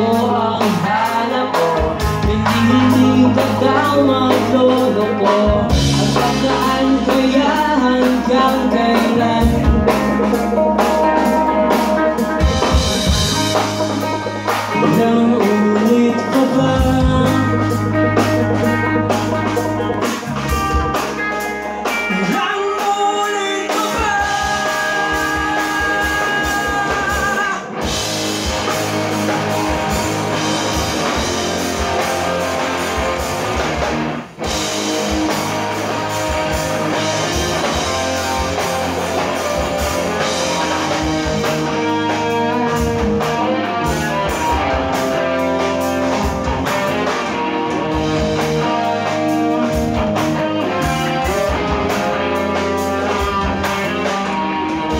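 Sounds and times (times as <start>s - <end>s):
person singing: 0.0s - 12.8s, 14.3s - 20.7s, 21.6s - 27.9s
live rock band playing: 0.0s - 54.9s.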